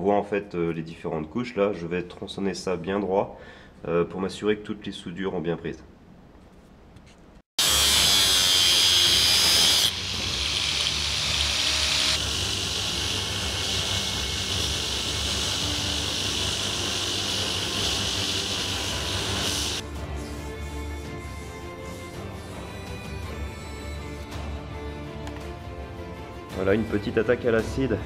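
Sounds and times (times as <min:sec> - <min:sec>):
belt grinder grinding steel: 0:07.6 - 0:19.8
motor humming: 0:07.6 - 0:19.8.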